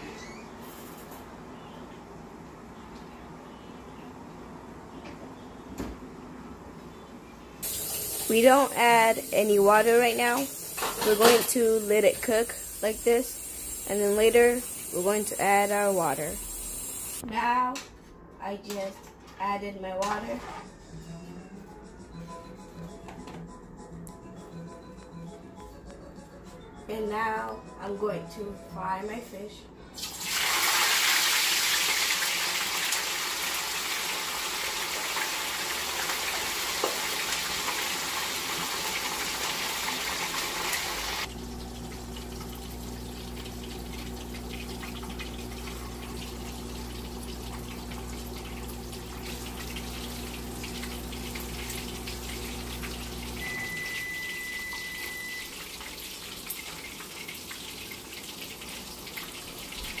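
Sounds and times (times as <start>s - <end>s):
fish sizzling in hot oil: 7.6s - 17.2s, 30.0s - 59.4s
short high tone: 53.4s - 55.5s.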